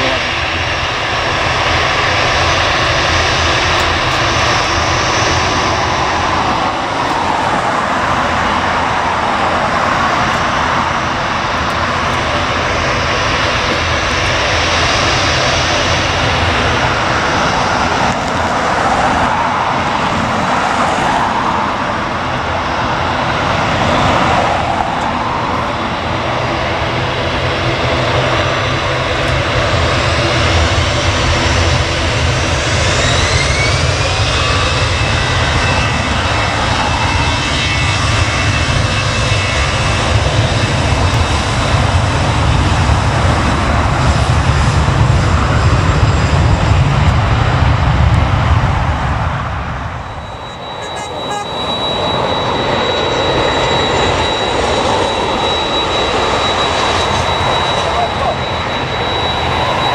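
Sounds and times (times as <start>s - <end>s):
airliner engines running: 0.0s - 59.9s
engine whine rising in pitch: 0.0s - 59.9s.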